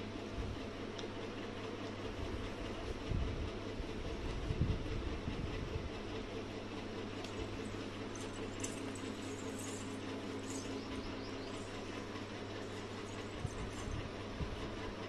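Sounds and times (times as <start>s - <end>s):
low background hum: 0.0s - 15.0s
comb scratching through hair: 7.3s - 14.2s.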